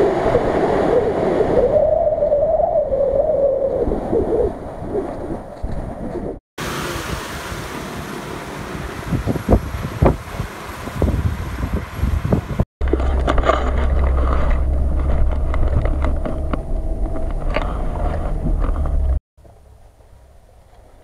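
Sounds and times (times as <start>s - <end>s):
vehicle splashing through water: 6.6s - 12.1s
low engine rumble: 12.8s - 21.0s.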